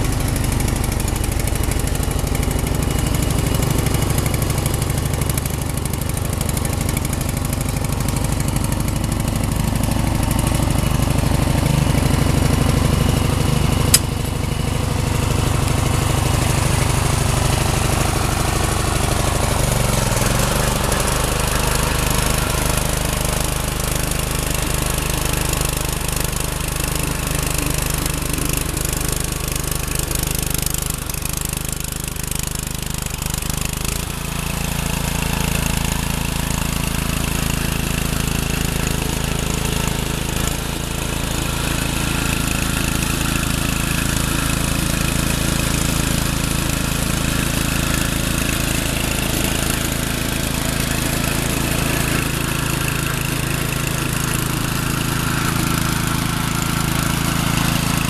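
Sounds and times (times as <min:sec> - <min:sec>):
riding mower engine running: 0:00.0 - 0:58.0.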